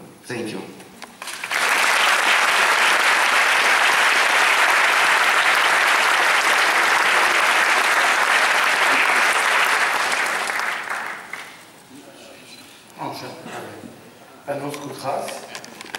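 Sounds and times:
audience applauding: 1.2 - 11.7.

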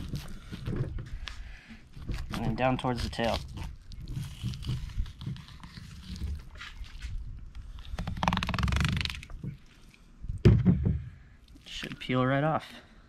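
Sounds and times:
knife cutting and scraping bone: 0.0 - 0.9, 1.9 - 9.8
loud low thump: 10.4 - 11.2.

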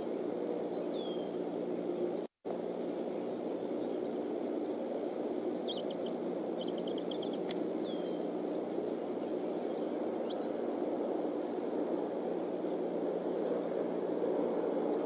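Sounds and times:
low rushing background noise: 0.0 - 15.0
faint high bird chirps: 0.6 - 1.4, 5.4 - 8.3, 9.1 - 10.6.

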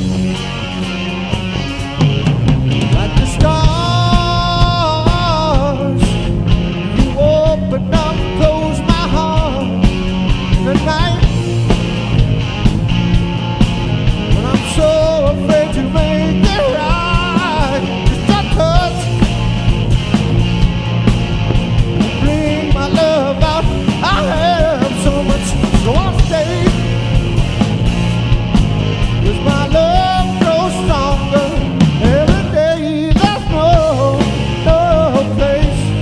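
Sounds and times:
driving drum beat: 0.0 - 36.0
rock song with vocals: 0.0 - 36.0.

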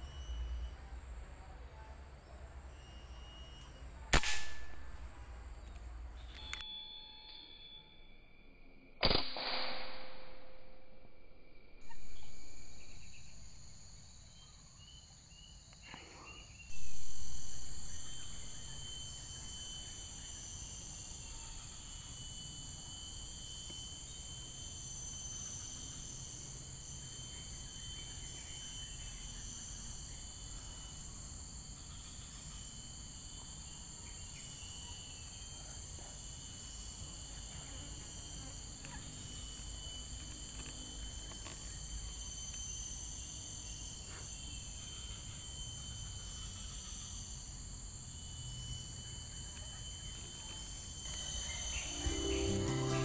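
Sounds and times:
insect chorus: 0.0 - 9.1, 11.8 - 53.0
sharp crack: 4.1 - 4.8, 9.0 - 10.4.

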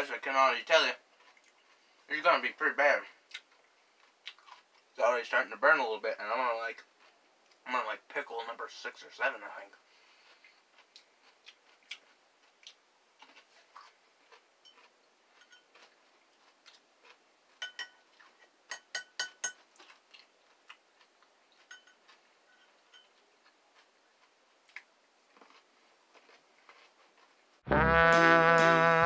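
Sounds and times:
fork clinking against glass jar: 15.4 - 15.7, 17.6 - 18.0, 18.7 - 19.6, 21.6 - 23.2.

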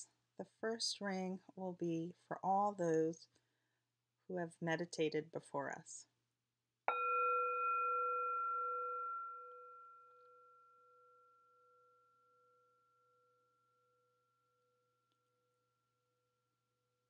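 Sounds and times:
meditation bell ringing: 6.9 - 16.5.

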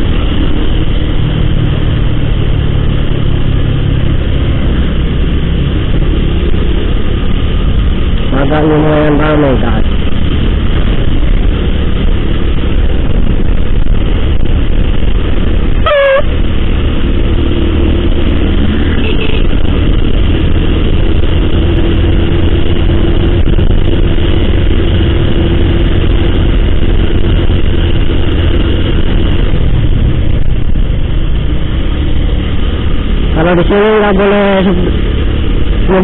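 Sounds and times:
road rumble: 0.0 - 36.0
scooter engine drone: 0.0 - 36.0
wind on microphone: 9.4 - 33.3.

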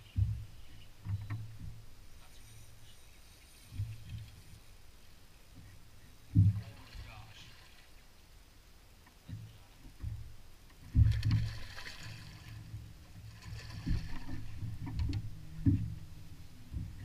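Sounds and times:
dull thuds on boat deck: 0.0 - 1.8, 5.5 - 6.8, 9.3 - 11.5, 12.8 - 17.0
faint hiss: 1.9 - 10.7.

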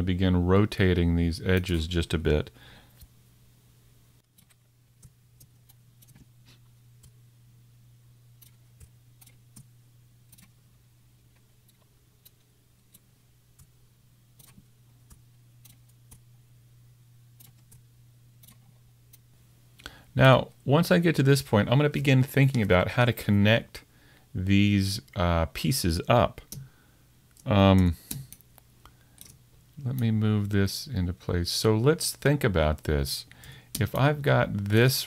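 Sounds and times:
steady low hum: 0.0 - 35.0
mouse and keyboard clicks: 10.3 - 10.6, 14.4 - 16.2.

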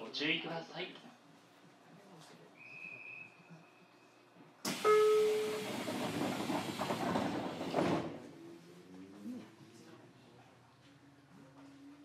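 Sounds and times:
compressed air hiss of train doors: 4.6 - 8.1.

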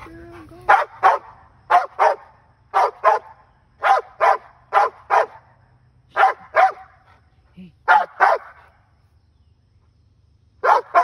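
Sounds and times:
large dog barking: 0.0 - 5.5, 6.1 - 7.0, 7.9 - 8.7, 10.6 - 11.0.

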